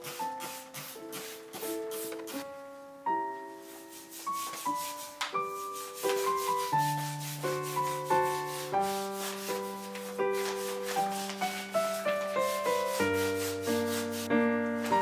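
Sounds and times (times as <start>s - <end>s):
melodic background music: 0.0s - 15.0s.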